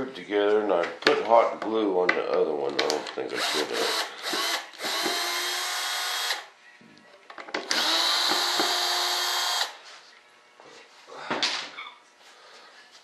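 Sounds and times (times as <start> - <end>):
cordless drill whining: 3.4 - 6.5, 7.7 - 9.8.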